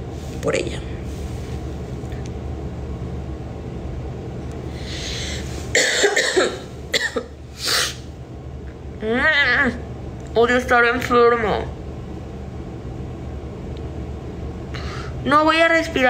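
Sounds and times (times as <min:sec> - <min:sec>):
woman breathing in: 0:04.7 - 0:05.7, 0:14.7 - 0:15.2
woman coughing: 0:05.7 - 0:08.0.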